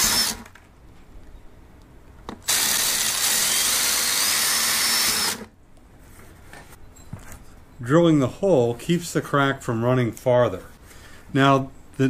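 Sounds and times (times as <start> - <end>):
cordless drill whining: 0.0 - 0.5, 2.4 - 5.5
drill click: 0.0 - 0.6, 2.4 - 5.5.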